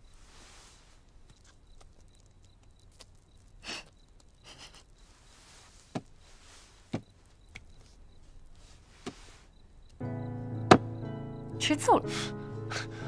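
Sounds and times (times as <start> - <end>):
small sharp knocks: 10.7 - 10.9.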